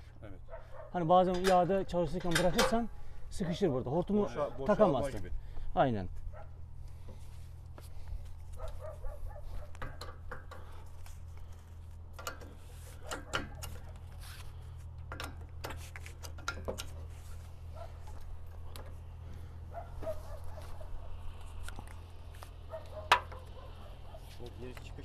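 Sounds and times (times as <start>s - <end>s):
steady low hum: 0.0s - 25.0s
metallic clicks of hose couplers: 1.3s - 2.9s, 9.7s - 17.1s.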